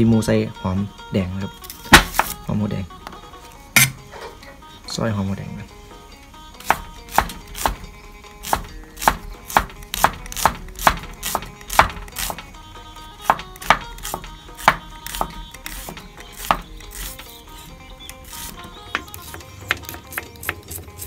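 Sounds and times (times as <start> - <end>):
knife chopping on wooden board: 1.9 - 2.4, 6.6 - 12.5, 13.2 - 17.4, 18.2 - 21.0.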